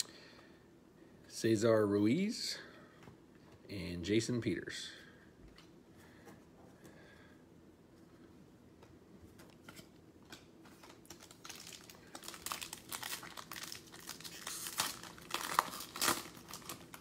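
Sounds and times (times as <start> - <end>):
foil wrapper tearing and crinkling: 10.8 - 17.0.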